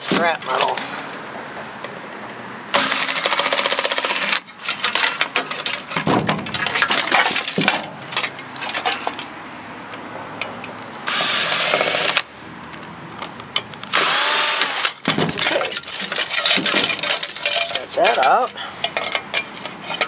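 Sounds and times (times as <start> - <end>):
cordless drill spinning out screws: 2.7 - 4.4, 11.1 - 12.2, 13.9 - 15.0
metal clinking and clattering: 4.7 - 9.3, 15.0 - 20.0.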